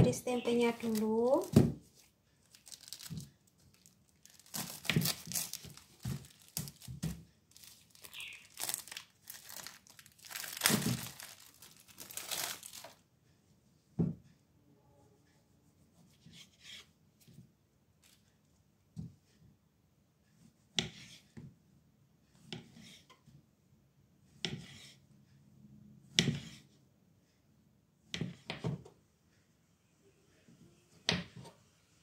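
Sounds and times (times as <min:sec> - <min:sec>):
plastic wrapping crinkling and tearing: 0:02.4 - 0:13.0.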